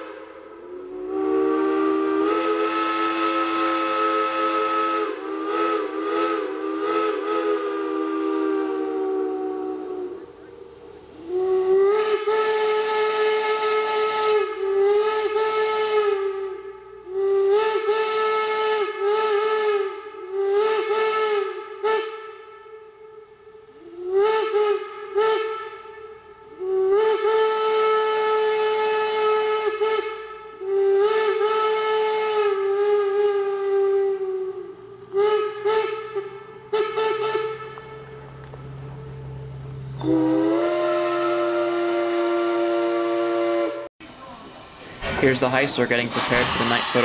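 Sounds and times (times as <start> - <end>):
escaping steam hiss: 0.0 - 15.0, 44.0 - 47.0
steam locomotive whistle blasts: 0.0 - 47.0.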